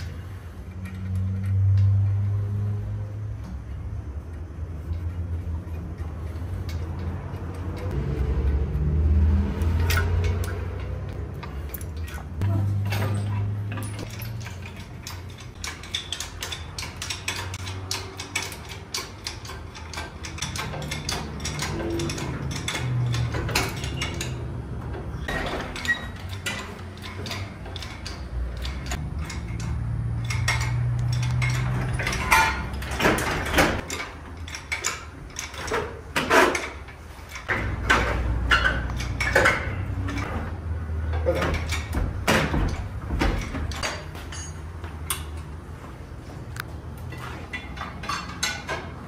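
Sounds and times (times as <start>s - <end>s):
metal tools clinking: 9.6s - 45.6s, 46.6s - 49.0s.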